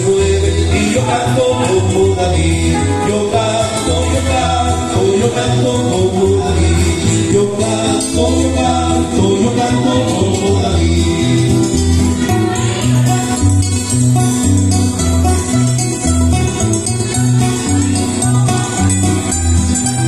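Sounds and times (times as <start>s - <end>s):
man singing: 0.0s - 13.5s
acoustic guitar: 0.0s - 20.0s
bass line of low notes: 0.0s - 20.0s.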